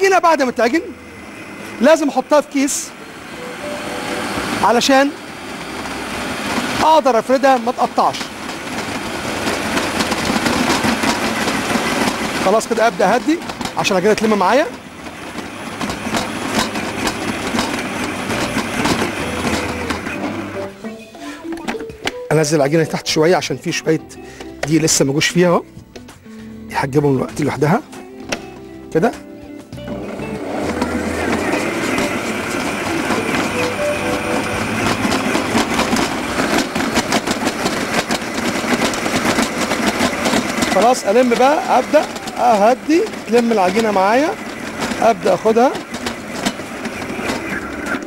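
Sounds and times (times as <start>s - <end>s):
stand mixer motor running: 0.0s - 22.0s, 29.7s - 48.0s
fast clatter of knocks: 5.9s - 20.3s, 30.6s - 48.0s.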